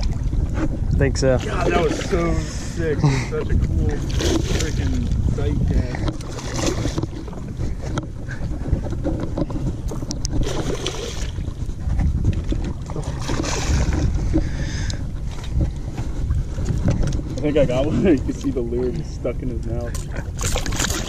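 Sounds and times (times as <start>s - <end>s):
wind buffeting microphone: 0.0s - 21.0s
fish splashing in water: 10.0s - 15.0s, 20.2s - 21.0s.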